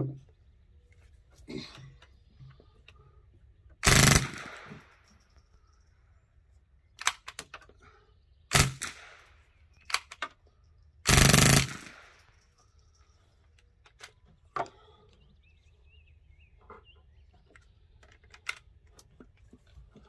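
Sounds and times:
rifle firing rapid bursts: 0:03.8 - 0:04.7, 0:08.5 - 0:09.2, 0:11.1 - 0:12.2.

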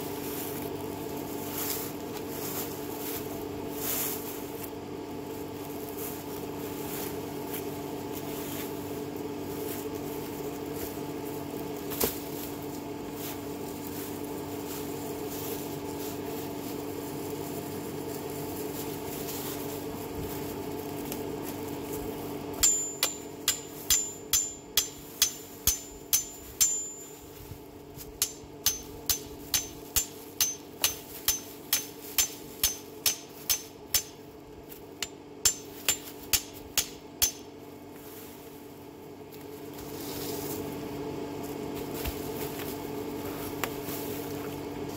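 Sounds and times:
steady low hum: 0:00.0 - 0:44.9
hammer striking metal: 0:22.6 - 0:27.2, 0:28.2 - 0:34.2, 0:35.0 - 0:37.5.

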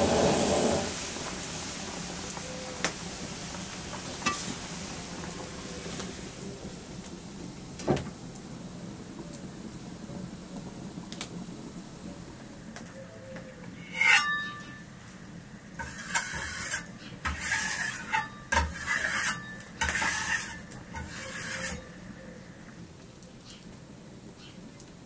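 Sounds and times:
metal scraping on metal: 0:13.8 - 0:14.9, 0:15.8 - 0:22.0.

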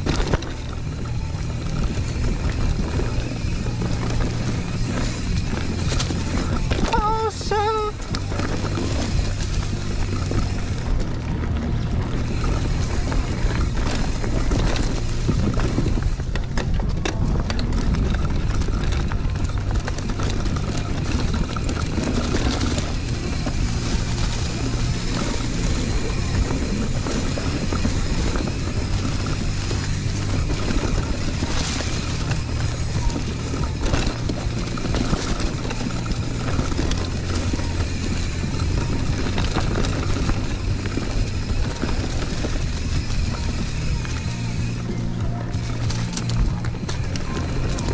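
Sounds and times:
bike chain and frame rattling: 0:00.0 - 0:47.9
tyre rumble: 0:00.0 - 0:47.9
wind rushing over microphone: 0:00.0 - 0:47.9.

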